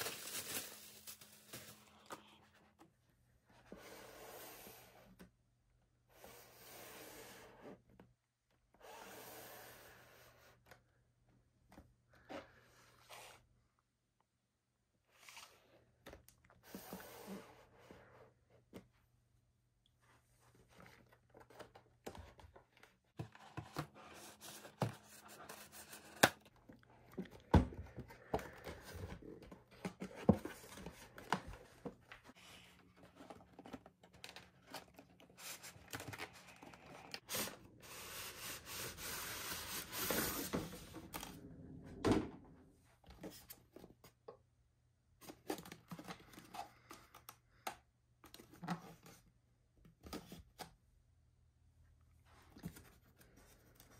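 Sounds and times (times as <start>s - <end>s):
packaging rustling and tearing: 0.0s - 2.1s.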